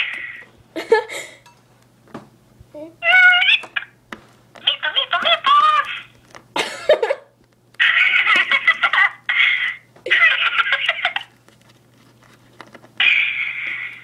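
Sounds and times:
girls giggling: 0.8s - 1.4s, 5.4s - 11.4s.

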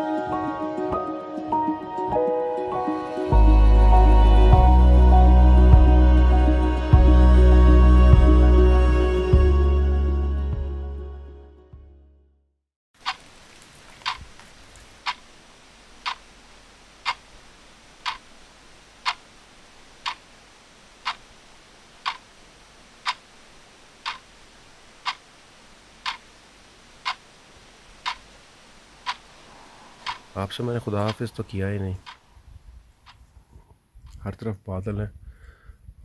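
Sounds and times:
faint steady hiss: 13.0s - 36.0s
clock ticking: 17.0s - 17.2s, 18.0s - 18.2s, 20.0s - 20.2s, 22.0s - 22.2s, 23.0s - 23.2s, 24.0s - 24.2s, 25.0s - 25.2s, 26.0s - 26.2s, 27.0s - 27.2s, 28.0s - 28.2s, 29.0s - 29.2s, 30.0s - 30.3s, 31.0s - 31.2s, 32.0s - 32.2s.

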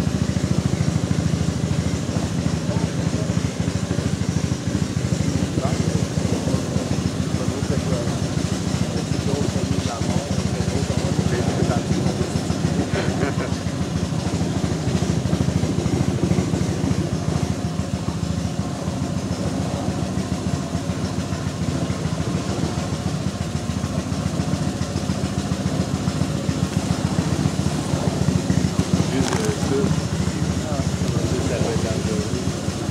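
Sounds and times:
small boat motor running: 0.0s - 32.9s.

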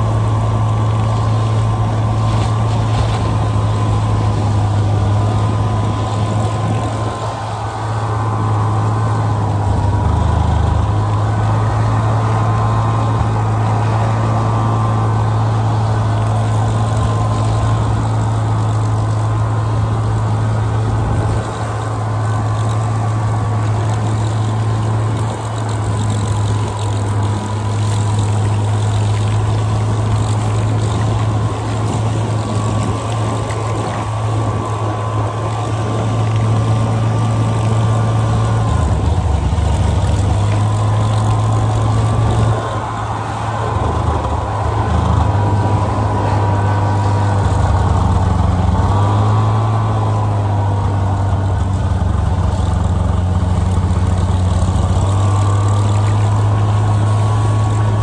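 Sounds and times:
snowmobile engine running: 0.0s - 58.0s.

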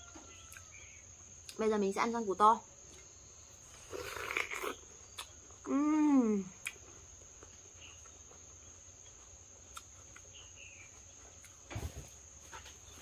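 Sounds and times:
high insect trill: 0.0s - 13.0s
crunchy bite and chewing: 3.7s - 5.7s
woman humming: 5.6s - 6.6s.

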